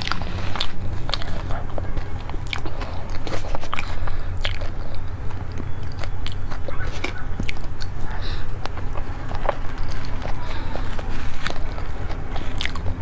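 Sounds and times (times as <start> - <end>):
crunchy chewing: 0.0 - 13.0
low steady hum: 0.0 - 13.0.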